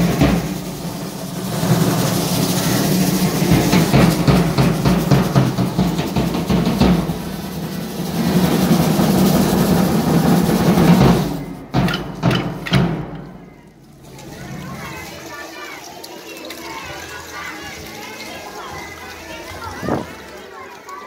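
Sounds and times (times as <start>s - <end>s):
snare drum beating and rolls: 0.0s - 13.6s.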